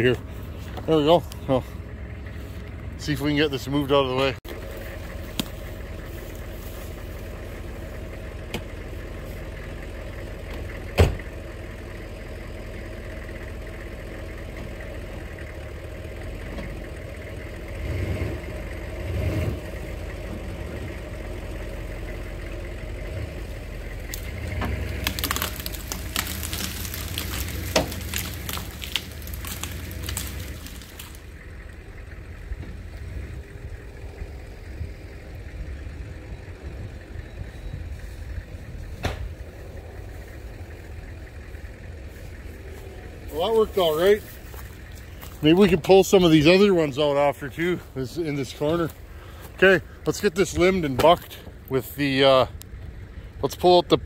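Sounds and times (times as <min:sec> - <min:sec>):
truck engine idling: 0:00.0 - 0:54.0
branches crackling and snapping: 0:00.2 - 0:10.8, 0:22.0 - 0:34.2, 0:38.0 - 0:51.9.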